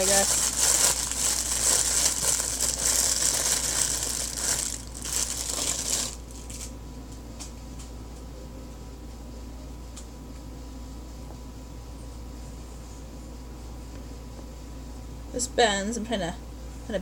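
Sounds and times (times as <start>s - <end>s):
plastic packaging crinkling: 0.0s - 6.8s.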